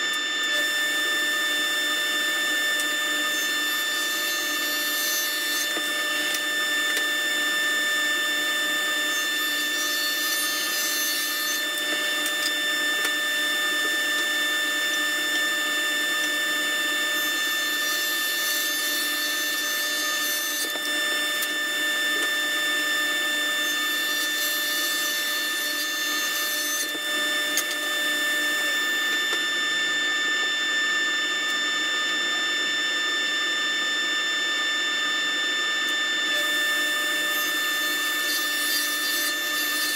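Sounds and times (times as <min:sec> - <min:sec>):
saw blade cutting wood: 0:00.0 - 0:29.5, 0:36.4 - 0:39.9
table saw motor whine: 0:00.0 - 0:39.9.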